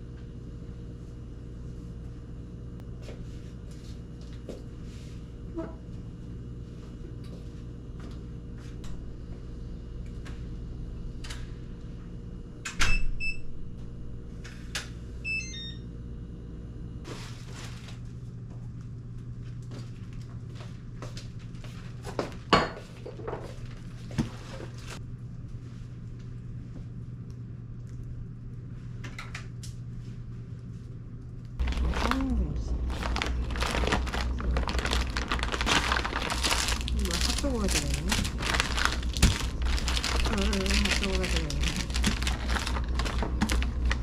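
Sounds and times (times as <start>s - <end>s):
appliance hum: 0.0s - 44.0s
electronic door lock beeps and tones: 12.8s - 13.4s, 15.3s - 15.8s.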